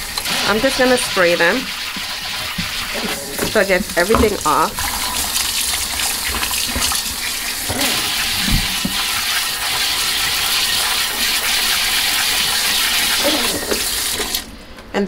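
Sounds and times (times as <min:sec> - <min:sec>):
faucet water spraying into a sink: 0:00.0 - 0:14.5.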